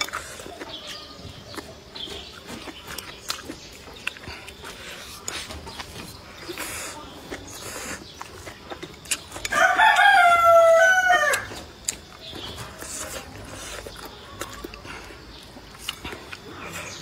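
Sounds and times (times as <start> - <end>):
rooster crowing: 9.5 - 11.6.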